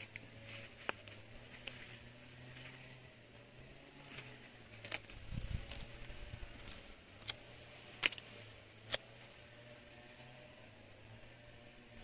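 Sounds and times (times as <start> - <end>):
paper sticker clicks and crackles: 8.0 - 8.2.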